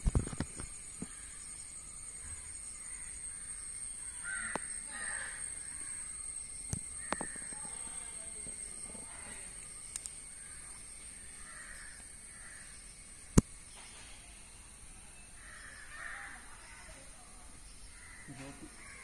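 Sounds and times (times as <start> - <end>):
steady high-pitched whine: 0.0 - 19.0
crows cawing: 4.0 - 6.1, 7.0 - 7.6, 11.2 - 12.7, 15.4 - 16.9, 17.9 - 19.0.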